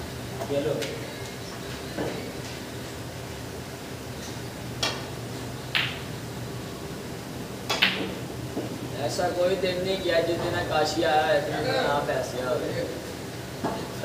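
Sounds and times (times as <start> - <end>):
steady low hum: 0.0 - 14.0
snooker balls clicking: 5.7 - 6.1, 7.7 - 8.7.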